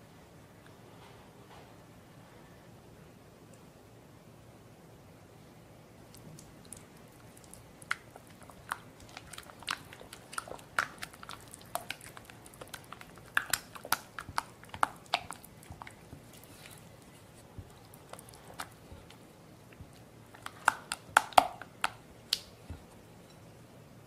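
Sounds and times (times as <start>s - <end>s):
spatula stirring batter in bowl: 7.2s - 19.2s.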